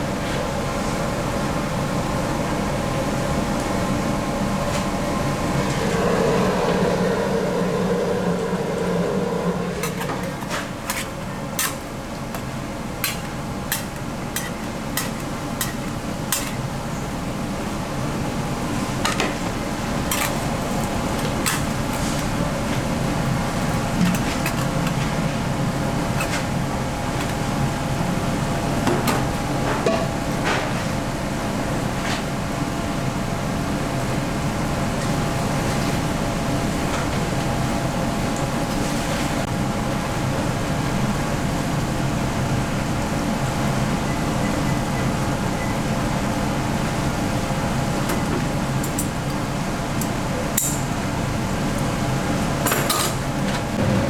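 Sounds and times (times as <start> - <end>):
factory machinery hum: 3.1 - 13.9, 53.5 - 54.0.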